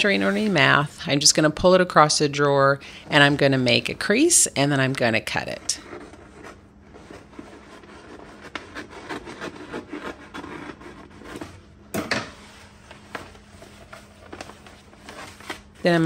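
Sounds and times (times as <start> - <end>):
paper liner rustling and crinkling: 3.2 - 11.7, 12.3 - 16.0.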